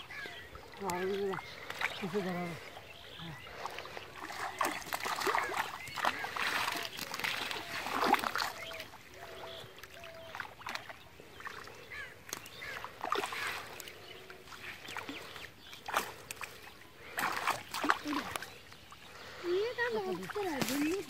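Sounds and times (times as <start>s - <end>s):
water splashing and sloshing: 0.0s - 21.0s.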